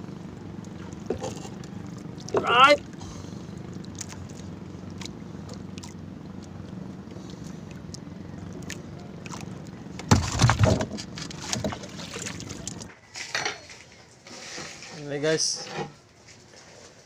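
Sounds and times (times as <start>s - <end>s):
boat engine low hum: 0.0s - 17.0s
loud bump and rustle: 10.0s - 12.3s.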